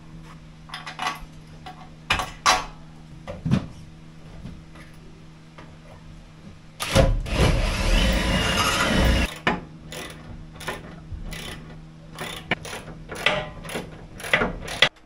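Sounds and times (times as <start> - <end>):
rasping ratcheting noise: 6.8 - 15.0.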